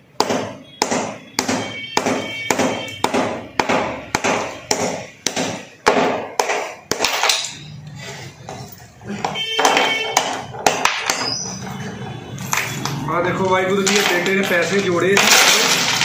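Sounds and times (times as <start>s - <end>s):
hammer knocking clay pot: 0.2s - 7.2s
clay pot breaking: 0.2s - 7.6s, 13.8s - 16.0s.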